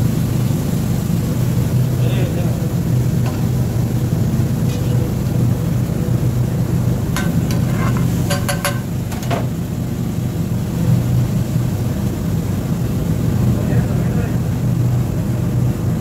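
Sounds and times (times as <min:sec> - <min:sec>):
steady low hum: 0:00.0 - 0:16.0
steel ladle clinking on iron pan: 0:07.2 - 0:08.9.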